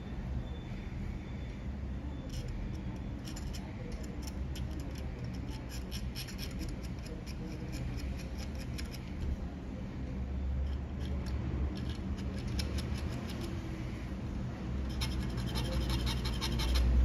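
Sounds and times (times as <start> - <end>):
steady low hum: 0.0 - 17.0
metal hand tool clicks and scrapes: 2.3 - 9.1, 10.7 - 13.6.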